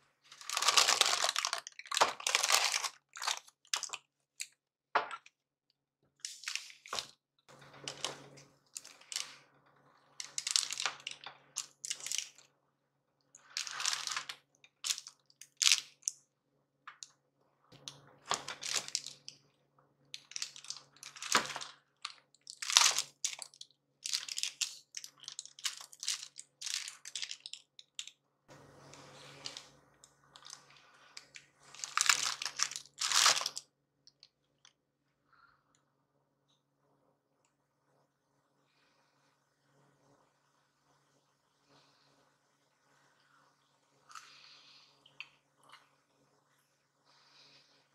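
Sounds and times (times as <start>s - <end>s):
paper crinkling: 0.3s - 4.0s, 6.2s - 7.1s, 7.8s - 9.4s, 10.2s - 12.4s, 13.4s - 16.0s, 18.3s - 19.4s, 20.2s - 28.1s, 29.0s - 29.7s, 30.4s - 33.6s
chocolate bar crunching: 0.3s - 4.5s, 10.2s - 12.4s, 13.6s - 16.2s, 18.3s - 19.4s, 20.2s - 28.2s, 31.2s - 33.6s.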